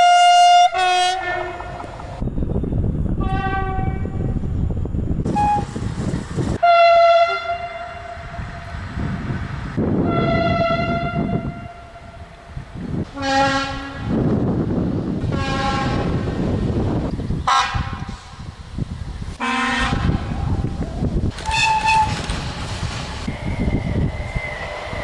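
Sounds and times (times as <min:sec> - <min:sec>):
train horn blasts: 0:00.0 - 0:01.8, 0:03.2 - 0:04.4, 0:06.6 - 0:08.8, 0:10.0 - 0:12.4, 0:13.0 - 0:14.2, 0:15.3 - 0:16.3, 0:17.5 - 0:18.2, 0:19.4 - 0:20.4, 0:21.4 - 0:22.3
trains rumbling on track: 0:00.0 - 0:25.0.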